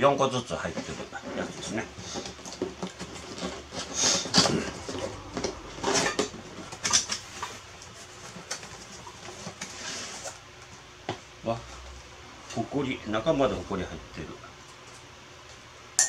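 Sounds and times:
cardboard flaps rustling and scraping: 0:00.6 - 0:10.4.

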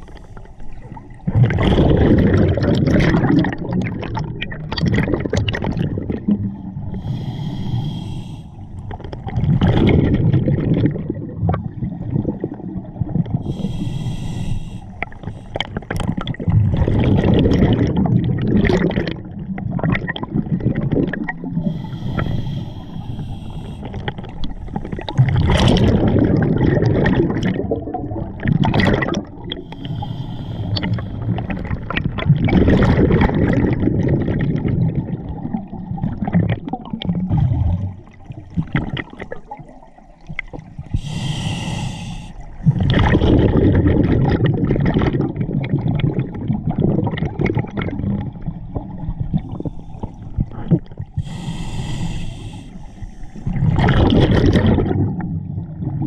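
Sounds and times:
regulator inhale hiss: 0:00.0 - 0:00.8, 0:07.0 - 0:08.8, 0:13.4 - 0:15.7, 0:21.6 - 0:25.1, 0:29.6 - 0:31.4, 0:40.9 - 0:42.6, 0:49.5 - 0:50.4, 0:51.2 - 0:53.5
exhaled bubbles underwater: 0:00.0 - 0:56.0.

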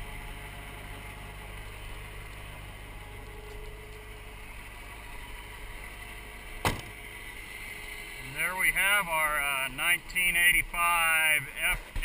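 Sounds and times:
diesel truck engine idling: 0:00.0 - 0:12.0
sharp knock: 0:06.6 - 0:06.9.

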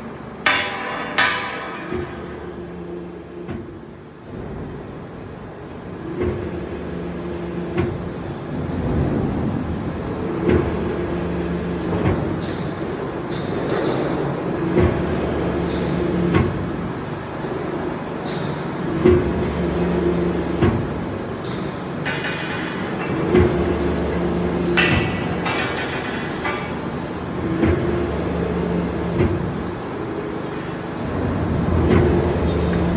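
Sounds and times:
forming machine humming and droning: 0:00.0 - 0:32.9
sharp metallic knocks: 0:00.4 - 0:02.4.

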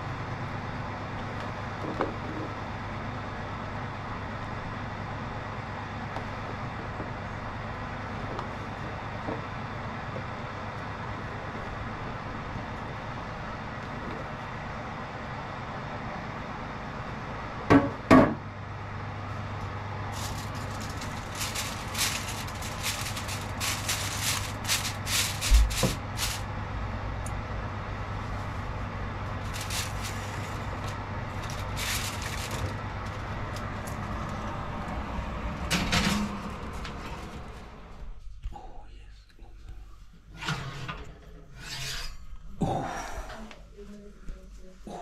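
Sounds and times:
steady low hum: 0:00.0 - 0:40.4
aluminium foil crinkling: 0:20.1 - 0:26.5, 0:29.3 - 0:34.4
dull thump: 0:25.5 - 0:26.0.

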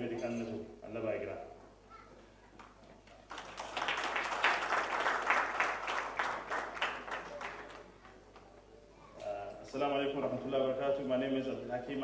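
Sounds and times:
audience applause: 0:03.2 - 0:08.2.

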